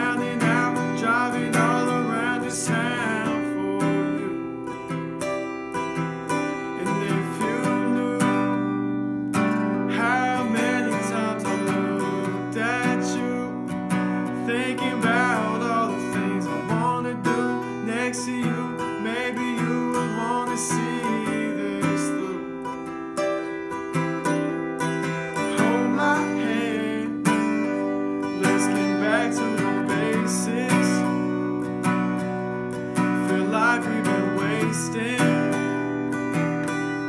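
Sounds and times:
man singing: 0.0 - 36.6
acoustic guitar strumming: 0.0 - 37.0.

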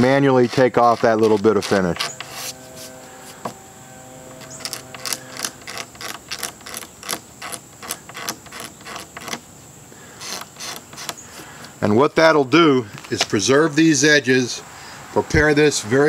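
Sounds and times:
razor blade scraping wood: 0.0 - 11.8.

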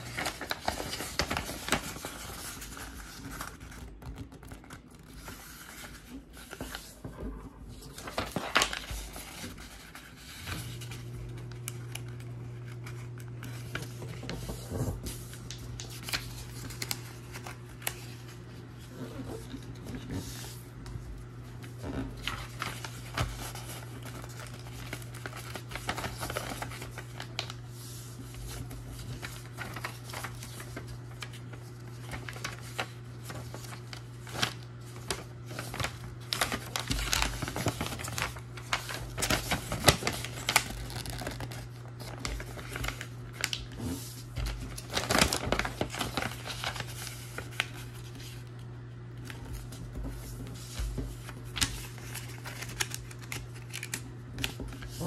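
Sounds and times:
paper rustling and creasing: 0.0 - 55.0.

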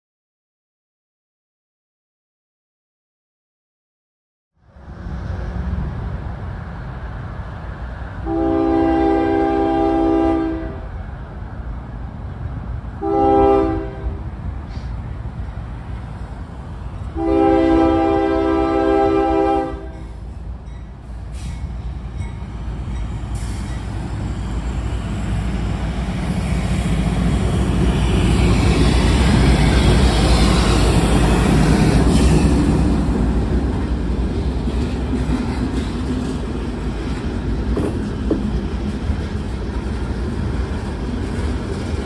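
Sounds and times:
train horn blast: 8.2 - 10.9, 13.0 - 14.8, 17.1 - 20.2
locomotive engine rumble: 10.8 - 42.0
freight cars rolling on rails: 19.8 - 42.0.

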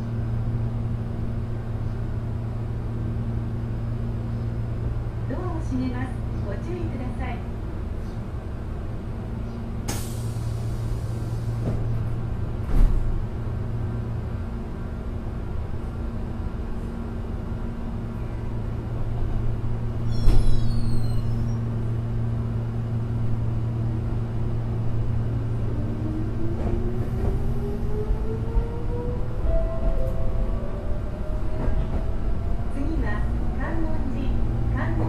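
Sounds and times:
train electrical hum: 0.0 - 35.0
brief high squeal: 20.0 - 21.6.

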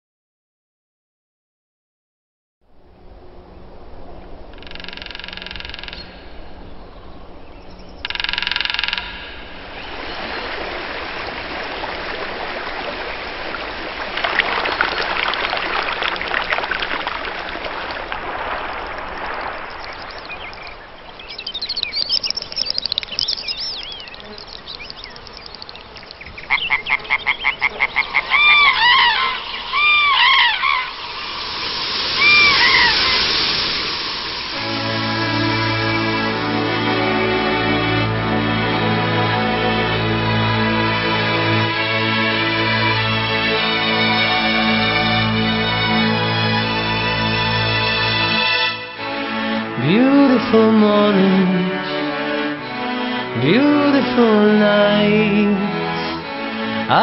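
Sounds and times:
waterbird honking calls: 4.2 - 13.6, 18.2 - 31.1, 32.1 - 33.5
waterbird pulsed calls: 4.2 - 36.4
steady rushing noise: 27.5 - 36.8.

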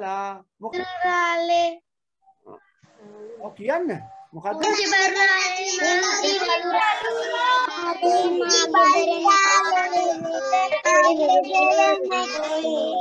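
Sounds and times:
children singing together: 4.6 - 13.0.

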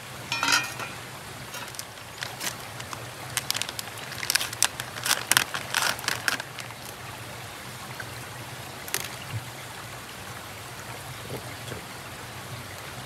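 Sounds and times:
stream flowing: 0.0 - 13.0
plastic packet crinkling: 1.5 - 7.0.

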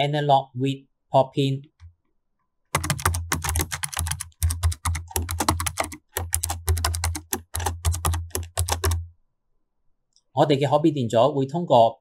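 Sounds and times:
fast typing on keyboard: 2.7 - 9.1.

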